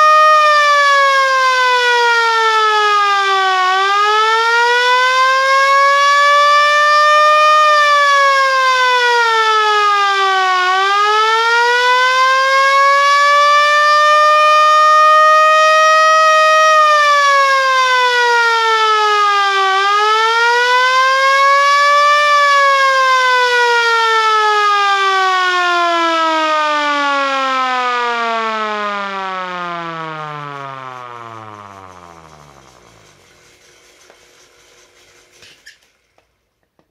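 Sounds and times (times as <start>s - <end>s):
alarm siren wailing: 0.0s - 33.4s.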